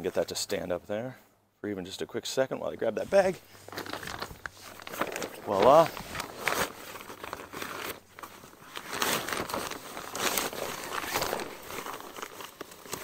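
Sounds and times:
fabric bag rustling: 3.1s - 13.0s.

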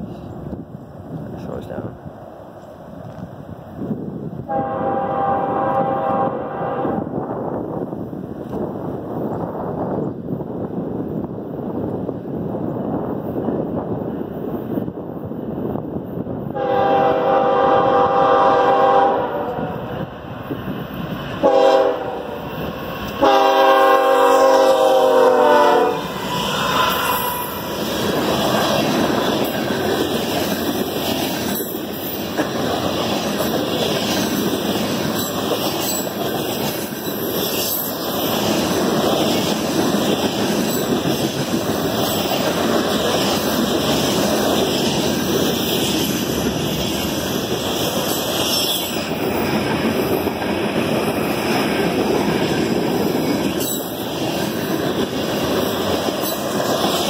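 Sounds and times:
train rumbling past: 0.0s - 57.0s
train horn blasts: 4.5s - 7.1s, 16.6s - 19.8s, 21.4s - 22.4s, 23.2s - 27.5s
wheels clacking over rail joints: 26.0s - 57.0s.

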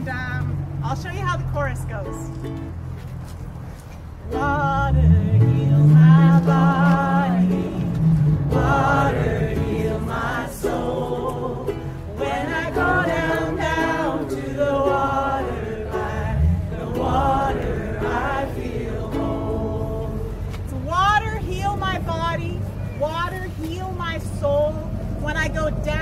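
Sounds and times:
group of people singing: 4.3s - 20.8s.

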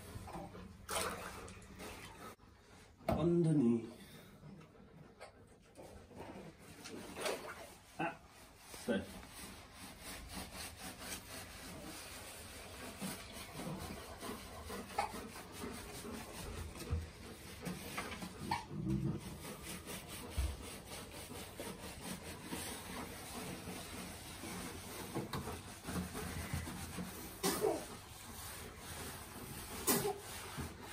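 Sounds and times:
water sloshing: 0.0s - 2.4s, 6.9s - 7.8s
hands scrubbing wet fur: 5.8s - 30.9s.

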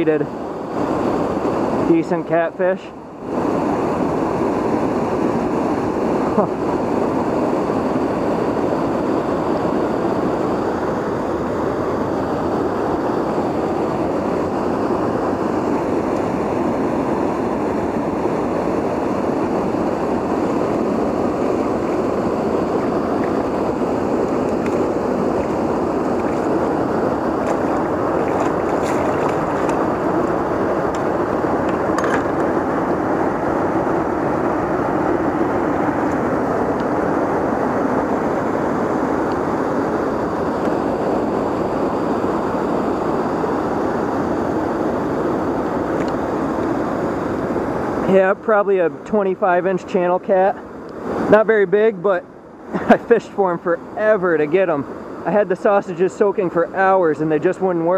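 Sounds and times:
river water rushing: 3.0s - 48.0s.

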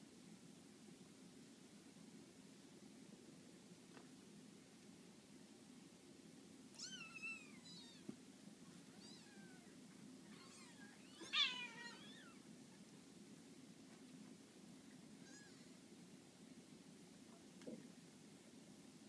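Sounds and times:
kittens mewing: 6.7s - 8.2s, 8.8s - 12.5s, 15.2s - 15.8s.

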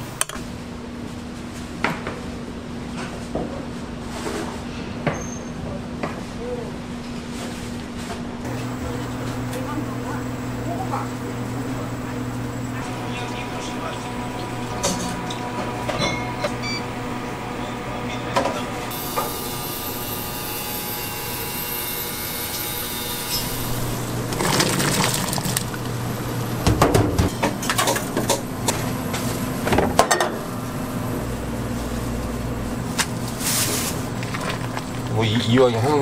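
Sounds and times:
steady hum: 8.4s - 36.0s
utensils and dishes clinking: 14.7s - 16.8s.

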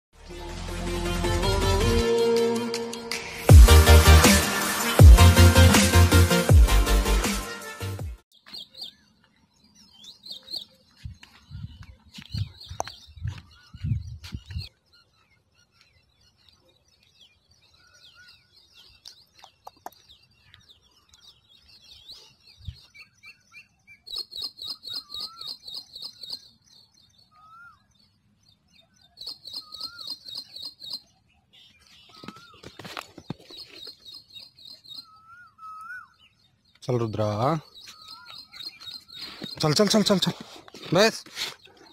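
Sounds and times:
wild birds chirping: 8.3s - 41.9s
bird trilling: 23.3s - 26.6s, 29.1s - 36.4s, 37.2s - 39.8s.

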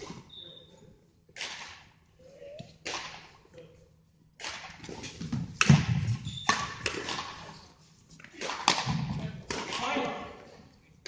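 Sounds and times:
rackets striking shuttlecock: 4.4s - 7.4s, 8.4s - 10.1s.

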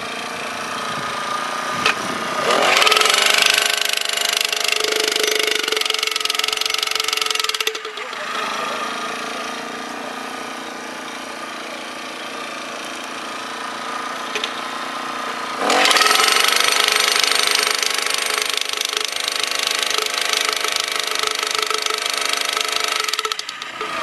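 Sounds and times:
small engine idling and revving: 0.0s - 24.0s.

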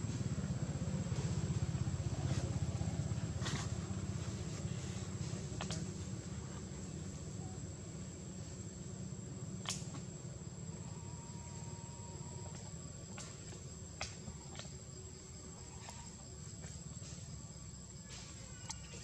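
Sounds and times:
forest insects droning: 0.0s - 19.0s.

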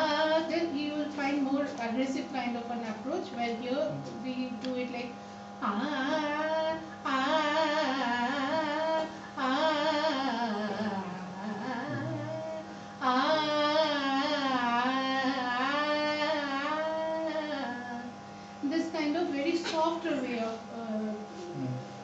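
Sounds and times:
steady hum: 0.0s - 22.0s
woman singing gliding notes: 5.6s - 18.1s.

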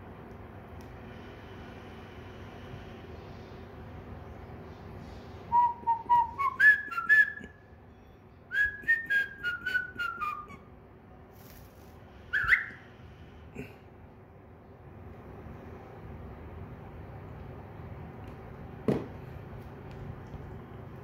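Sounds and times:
cockatiel whistling a tune: 5.5s - 7.5s, 8.1s - 10.6s, 12.3s - 12.8s.

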